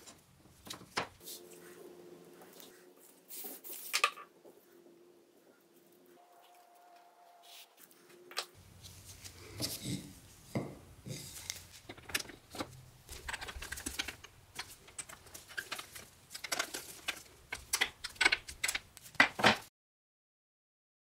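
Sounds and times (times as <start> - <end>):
print blocks tapping and clacking: 11.9 - 19.6.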